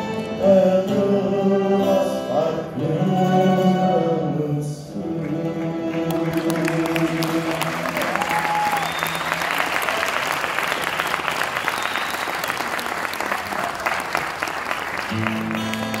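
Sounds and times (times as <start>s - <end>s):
audience applauding: 5.9s - 16.0s.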